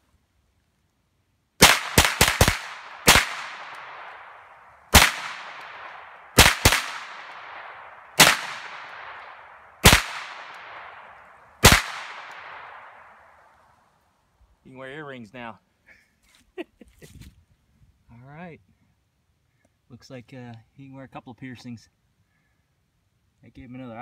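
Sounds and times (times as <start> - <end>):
rifle shots echoing: 1.6 - 13.5.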